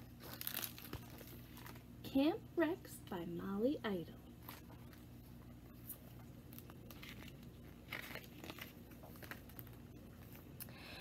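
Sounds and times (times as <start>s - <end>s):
book pages rustling: 0.0s - 1.9s, 4.4s - 10.6s.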